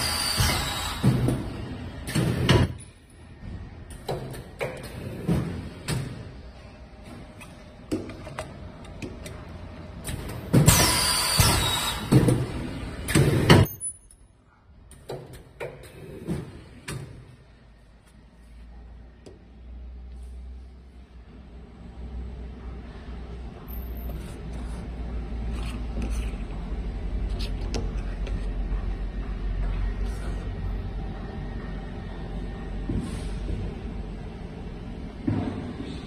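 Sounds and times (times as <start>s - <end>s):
machine hiss with high whine: 10.6s - 12.2s.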